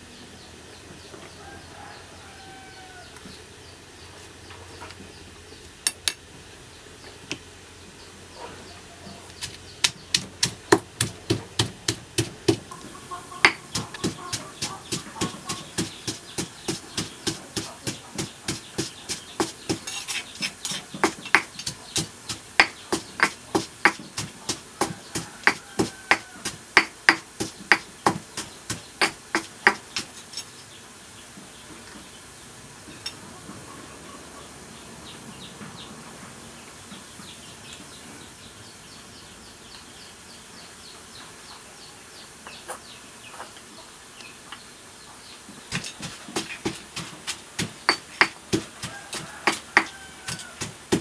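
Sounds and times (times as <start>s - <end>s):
pestle pounding in stone mortar: 9.4s - 12.7s, 13.4s - 30.1s, 45.7s - 51.0s.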